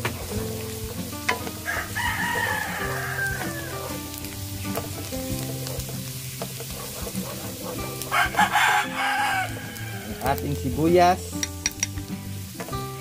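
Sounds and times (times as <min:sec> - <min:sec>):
wooden spatula scraping wok: 0:00.0 - 0:10.8
garlic sizzling in hot oil: 0:00.0 - 0:13.0
soft background music: 0:00.0 - 0:13.0
rooster crowing: 0:01.6 - 0:03.9, 0:08.1 - 0:10.2.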